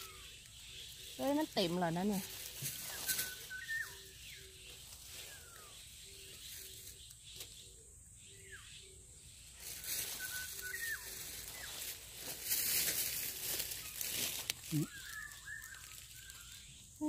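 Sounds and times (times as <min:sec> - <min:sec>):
rustling: 0:00.9 - 0:03.9, 0:09.6 - 0:16.6
birds whistling descending notes: 0:02.8 - 0:07.2, 0:08.3 - 0:12.0, 0:13.4 - 0:16.9.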